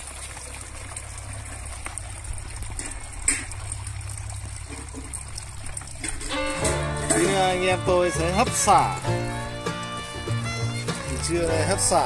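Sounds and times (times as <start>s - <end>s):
water trickling: 0.0s - 12.0s.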